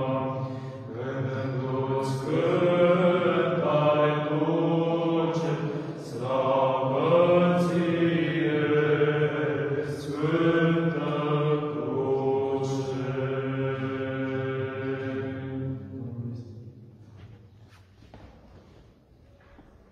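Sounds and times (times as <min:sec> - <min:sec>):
choir chanting over drone: 0:00.0 - 0:16.8.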